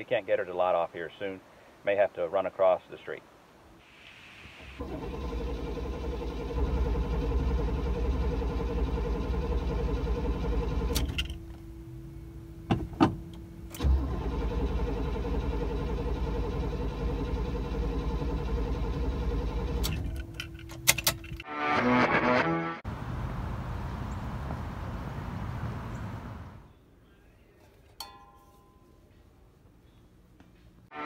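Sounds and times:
car engine starter cranking: 4.8 - 11.6, 13.3 - 21.5
steady single-note tone: 11.4 - 13.7.

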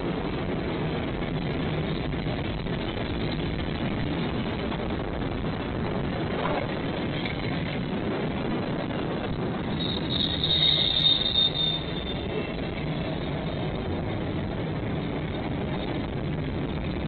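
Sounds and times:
train rolling past: 0.0 - 17.0
high-pitched squeal: 9.6 - 13.6.

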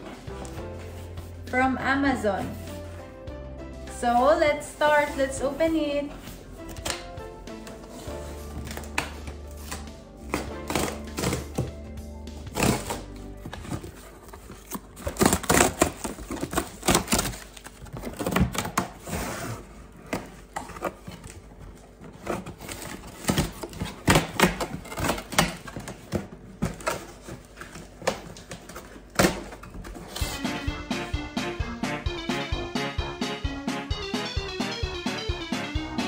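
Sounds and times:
packaging rustling: 12.5 - 19.2, 20.1 - 30.4.

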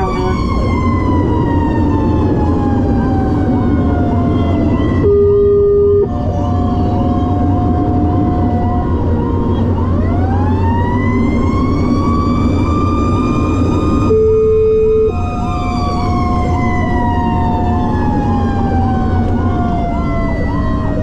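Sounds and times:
fire engine horn blasts: 0.0 - 0.6, 5.0 - 6.4, 14.1 - 15.2
fast electronic siren cycle: 0.0 - 21.0
siren wail: 0.0 - 21.0
truck engine and road drone: 0.0 - 21.0.

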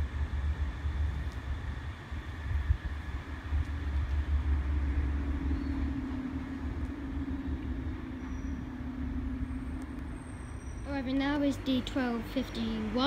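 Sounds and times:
diesel train engine drone: 0.0 - 13.0
low rumble: 0.0 - 13.0.

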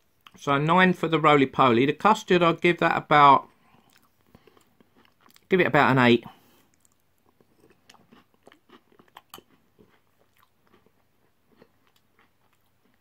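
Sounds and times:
wet mouth chewing clicks: 6.7 - 13.0.

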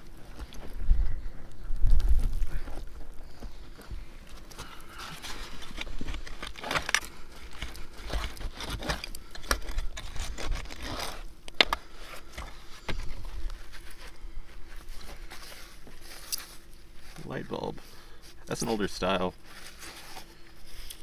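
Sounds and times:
digging tool scraping dirt: 4.6 - 14.1.

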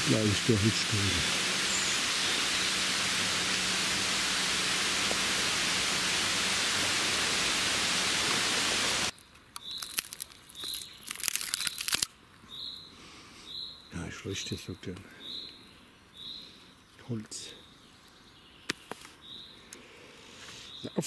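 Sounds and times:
steady rushing noise: 0.0 - 9.1
bird chirps: 1.0 - 2.9, 15.1 - 19.6.

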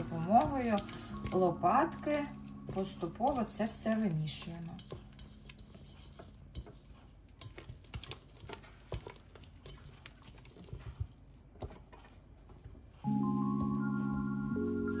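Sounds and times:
spatula tapping a bowl: 0.0 - 9.8.

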